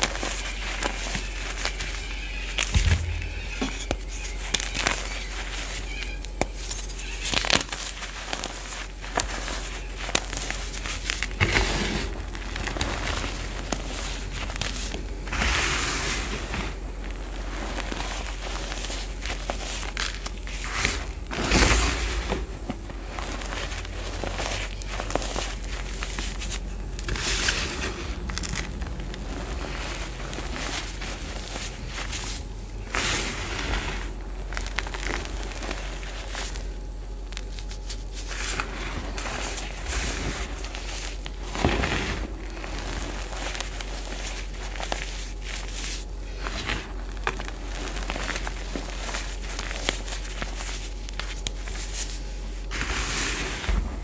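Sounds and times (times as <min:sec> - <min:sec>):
chalk crunching and crackling: 0:00.0 - 0:54.0.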